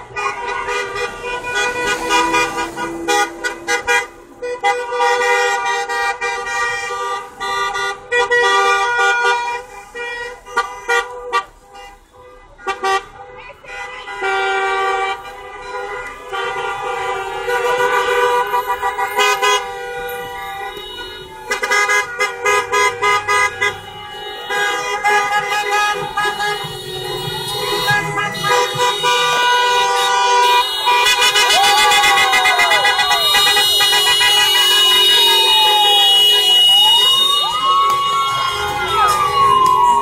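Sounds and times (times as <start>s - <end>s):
car horns honking: 0.0s - 40.0s
people shouting: 27.1s - 40.0s
wailing siren: 31.2s - 40.0s.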